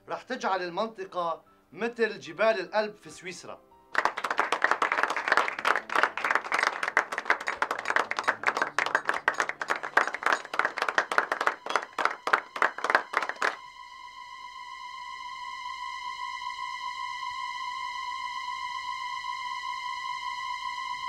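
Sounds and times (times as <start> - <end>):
crowd applauding: 4.0 - 13.6
steady high tone: 5.1 - 21.0.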